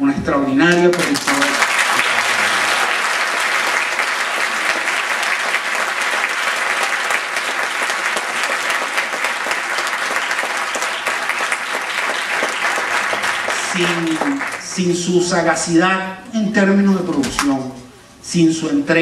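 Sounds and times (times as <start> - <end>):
audience applauding: 0.7 - 15.1.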